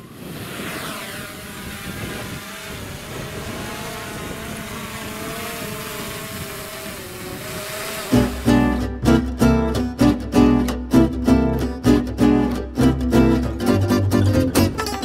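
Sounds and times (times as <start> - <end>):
drone propellers buzzing: 0.0 - 10.3.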